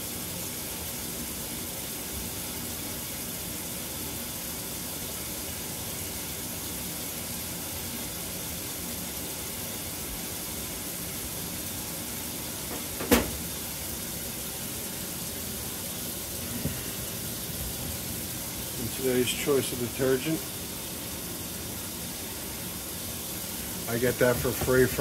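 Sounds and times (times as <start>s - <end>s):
water running into washer tub: 0.0s - 25.0s
sharp knock: 12.7s - 13.4s.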